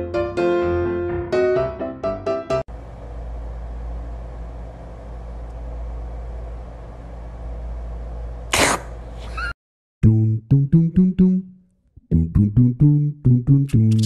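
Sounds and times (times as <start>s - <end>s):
low room hum: 2.7s - 9.5s
sneeze: 8.5s - 9.5s.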